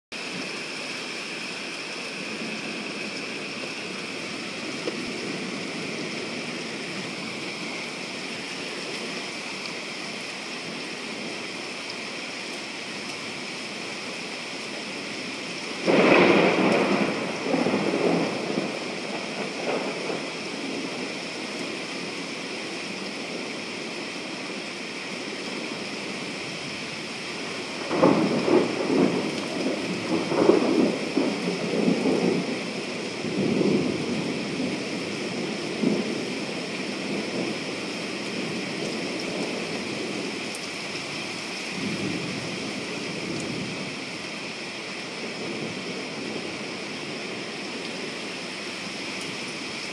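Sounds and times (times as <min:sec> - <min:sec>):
steady rain: 0:00.1 - 0:49.9
loud thunder clap: 0:15.8 - 0:20.2
rolling thunder: 0:15.8 - 0:21.1, 0:27.6 - 0:40.3.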